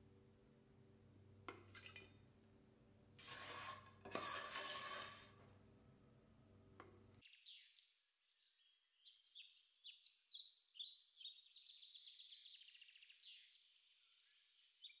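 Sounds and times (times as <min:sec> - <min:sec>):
faint birdsong chirps and trills: 0:07.2 - 0:15.0.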